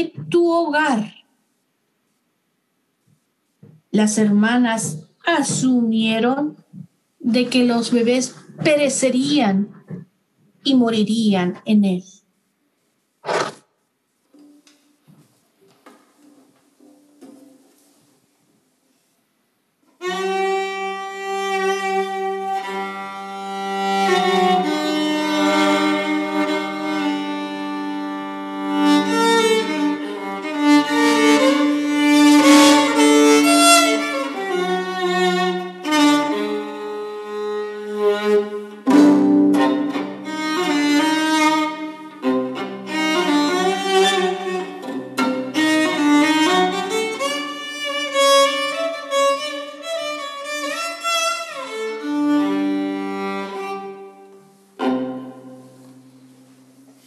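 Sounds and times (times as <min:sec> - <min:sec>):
solo violin melody: 0:20.0 - 0:56.3.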